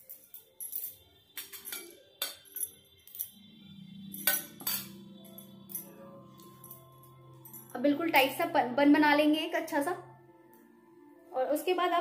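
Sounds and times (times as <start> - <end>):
bangles clinking: 0.0 - 8.4
soft background music: 0.0 - 12.0.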